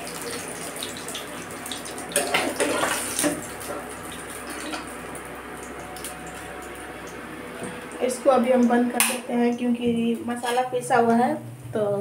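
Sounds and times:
fish sizzling in hot oil: 0.0s - 8.0s.

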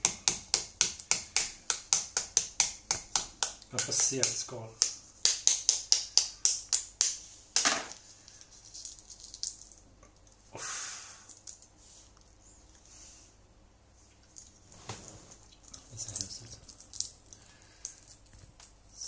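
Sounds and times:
knife tapping eggshell: 0.0s - 7.8s.

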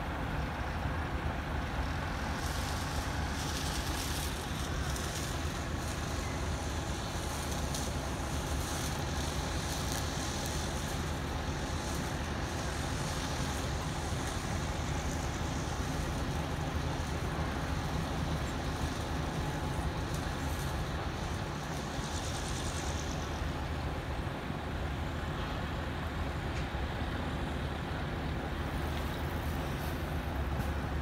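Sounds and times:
low rumble of vehicles: 0.0s - 31.0s.

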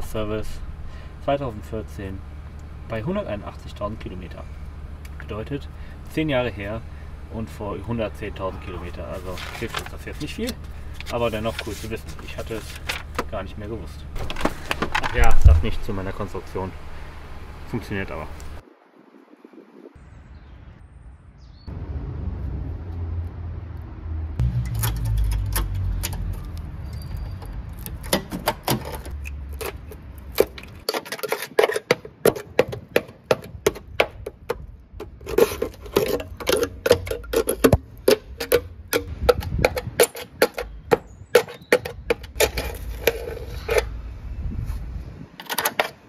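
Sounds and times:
rotten metal crackling: 8.5s - 18.6s, 24.4s - 44.0s
metal tool tapping rusted steel: 28.0s - 43.8s.

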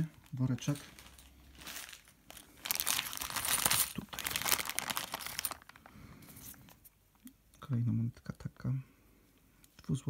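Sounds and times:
plastic bag crinkling: 0.0s - 6.6s.

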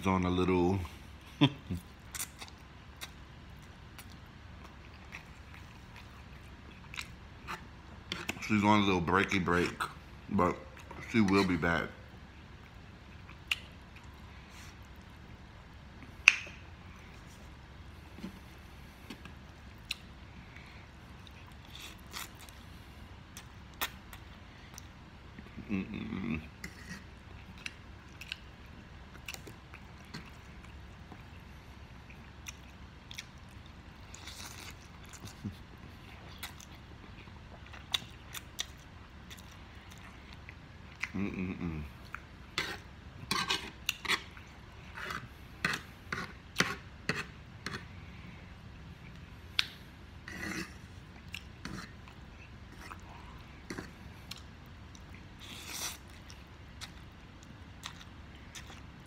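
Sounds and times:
wet chewing and lip smacks: 13.2s - 15.1s, 51.1s - 59.0s.

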